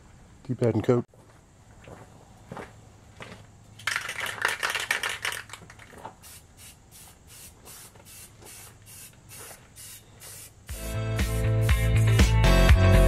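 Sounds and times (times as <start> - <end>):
spray can rattling when shaken: 3.8 - 12.0
spray can hissing spurts: 4.0 - 12.2.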